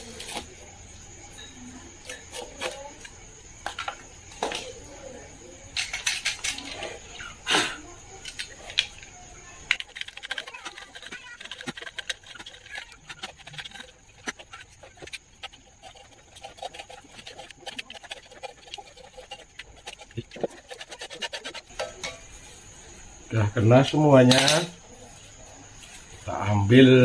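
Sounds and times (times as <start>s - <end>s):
scratching and crackling: 8.3s - 22.1s.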